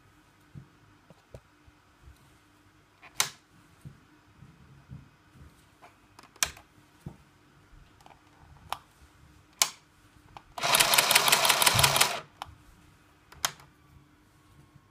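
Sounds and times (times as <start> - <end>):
sharp clicks: 10.6 - 12.2
toy sewing machine rattling: 10.6 - 12.3.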